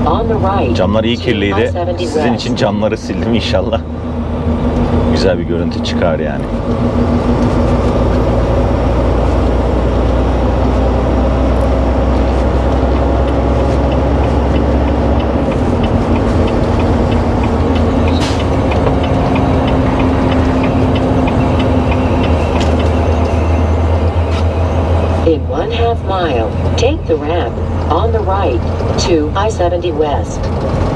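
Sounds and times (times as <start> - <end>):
truck diesel engine running: 0.0 - 30.9
faint regular ticking: 2.9 - 25.0.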